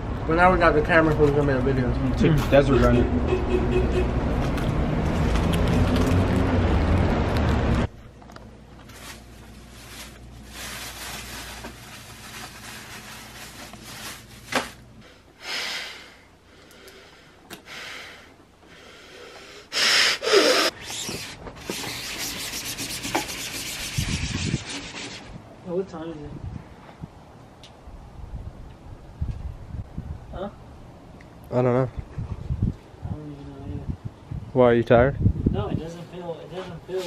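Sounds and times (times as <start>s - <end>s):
street traffic rumble: 0.0s - 15.4s, 25.2s - 37.0s
rubbing and scraping: 20.5s - 25.4s.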